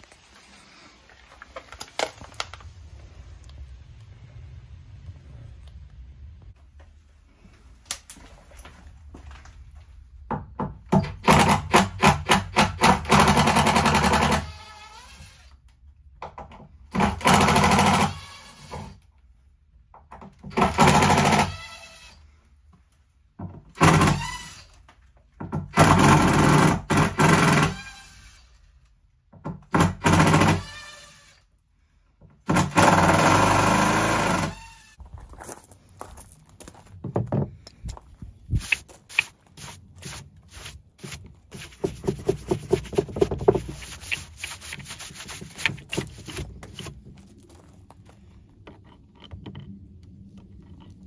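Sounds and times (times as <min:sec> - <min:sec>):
faint clicks and crunches: 0:00.0 - 0:02.7.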